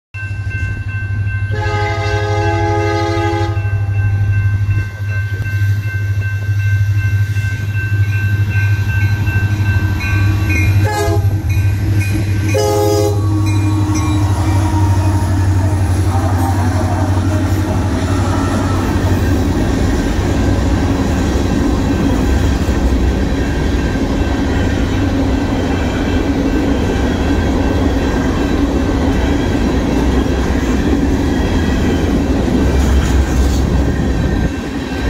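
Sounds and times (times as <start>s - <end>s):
crossing warning bell ringing: 0.1s - 35.0s
train horn blasts: 1.5s - 4.3s, 10.2s - 11.5s, 12.4s - 19.5s
locomotive rumble: 1.7s - 35.0s.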